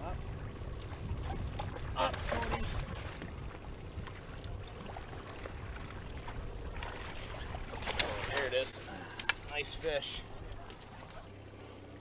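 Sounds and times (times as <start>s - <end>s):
boat engine running: 0.0s - 12.0s
fish splashing in water: 0.8s - 9.4s.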